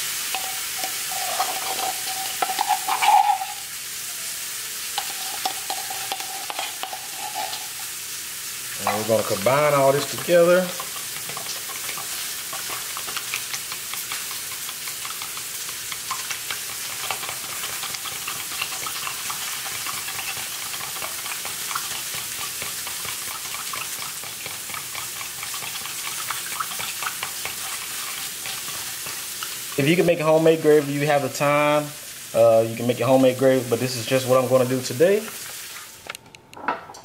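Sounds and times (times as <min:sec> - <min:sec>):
metal spoon stirring in plastic cup: 0:00.3 - 0:03.6, 0:05.0 - 0:07.8.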